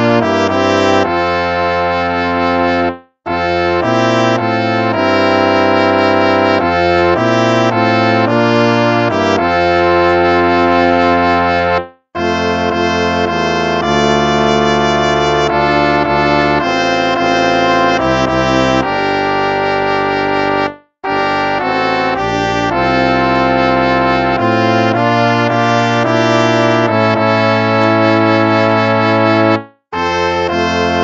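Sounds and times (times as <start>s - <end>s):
brass chords playing a hymn: 0.0s - 31.0s.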